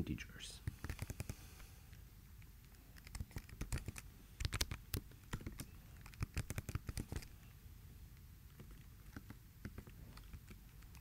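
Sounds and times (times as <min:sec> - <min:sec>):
keyboard typing: 0:00.8 - 0:01.3, 0:02.6 - 0:07.3.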